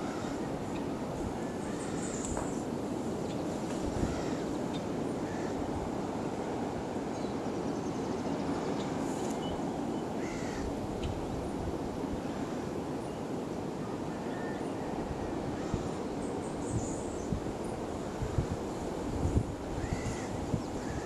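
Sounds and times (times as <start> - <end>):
faint short bird calls: 19.8 - 21.0.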